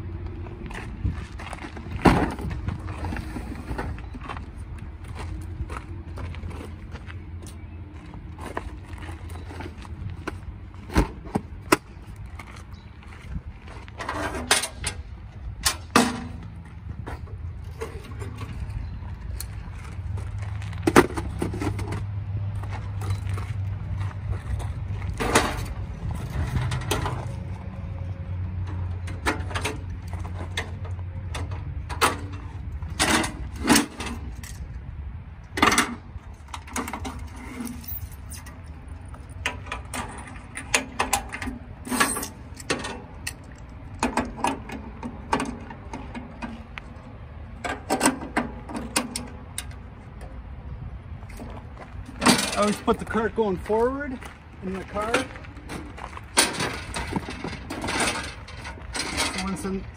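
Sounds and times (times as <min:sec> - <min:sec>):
metal cart folding: 0:13.9 - 0:18.9, 0:20.3 - 0:22.1, 0:24.4 - 0:27.7, 0:28.7 - 0:34.6, 0:35.6 - 0:38.6, 0:39.3 - 0:46.7, 0:51.4 - 0:53.5, 0:54.9 - 0:59.8
gear clicking and clanking: 0:28.6 - 0:50.4, 0:51.2 - 0:59.9.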